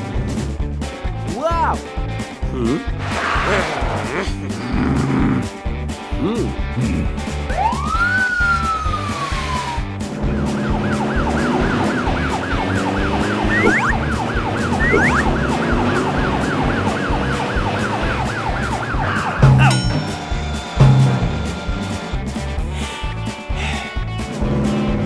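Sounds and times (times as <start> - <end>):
background music with low beat: 5.8 - 25.0
police siren yelping: 7.5 - 19.7
falling whistle-like glide: 7.6 - 19.4.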